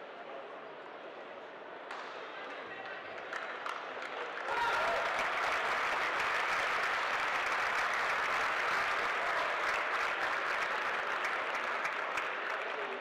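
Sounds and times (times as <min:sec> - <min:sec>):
crowd applauding: 0:03.2 - 0:13.0.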